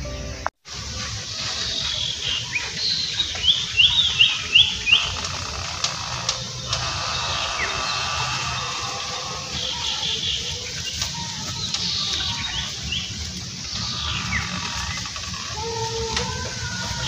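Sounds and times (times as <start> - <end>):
outdoor background noise: 0.0 - 17.0
small bird chirping: 1.5 - 15.9
faint clicks: 4.6 - 9.0.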